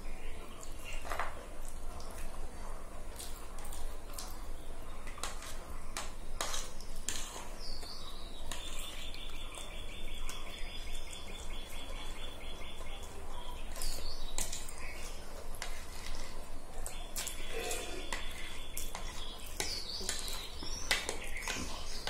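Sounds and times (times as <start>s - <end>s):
bird chirping and trilling: 7.6s - 15.2s
forks scraping ceramic plates: 17.2s - 20.4s.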